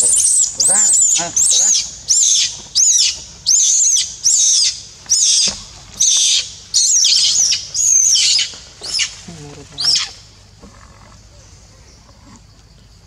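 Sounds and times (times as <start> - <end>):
monkey screaming: 0.0 - 9.2, 9.8 - 10.2.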